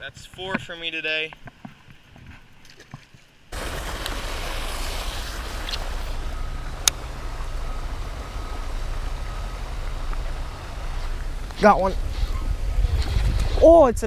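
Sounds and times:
wind buffeting microphone: 3.5s - 14.0s.

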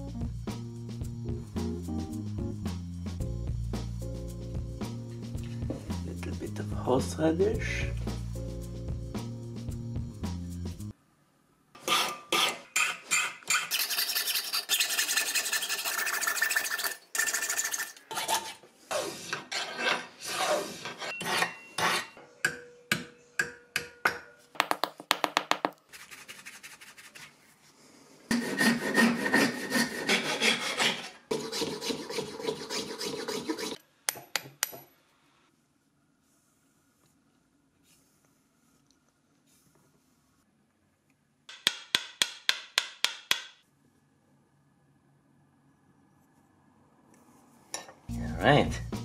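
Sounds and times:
hand file scraping: 11.8s - 15.8s, 18.1s - 22.2s, 28.3s - 33.8s.

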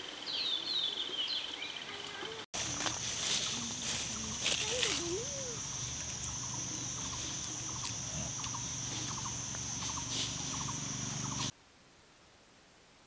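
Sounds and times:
high-pitched insect drone: 1.9s - 11.5s.

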